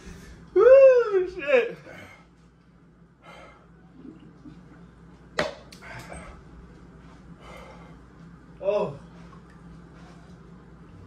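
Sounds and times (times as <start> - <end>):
man breathing hard: 7.3 - 8.1.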